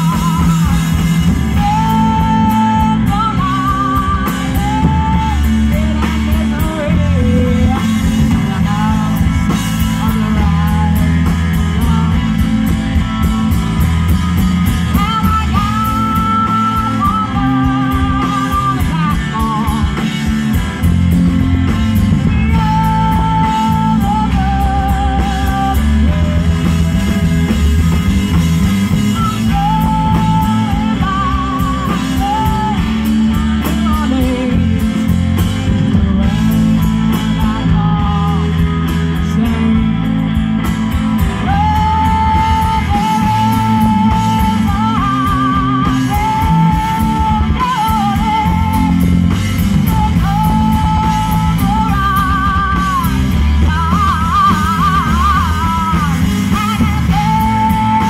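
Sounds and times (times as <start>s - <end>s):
woman singing: 0.0s - 21.0s, 21.6s - 58.0s
drum kit: 0.0s - 58.0s
electric bass: 0.0s - 58.0s
electric guitar: 0.0s - 58.0s.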